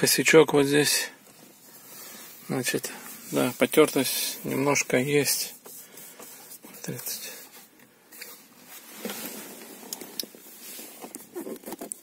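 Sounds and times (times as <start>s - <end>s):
clothing brushing seat: 1.5s - 12.0s
camera handling rustling: 9.0s - 12.0s.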